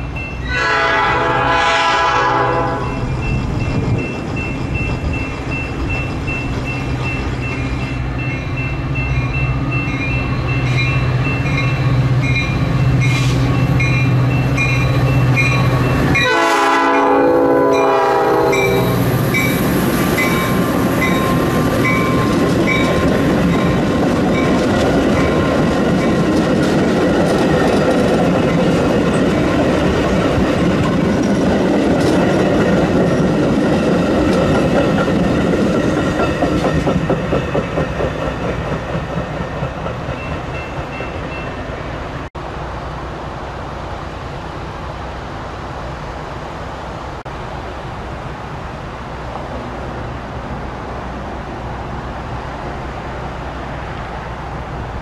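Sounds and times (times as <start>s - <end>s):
crossing bell ringing: 0.0s - 26.4s, 39.4s - 42.1s
train horn chord: 0.5s - 3.0s, 16.2s - 19.0s
train wheels clacking: 17.8s - 41.7s.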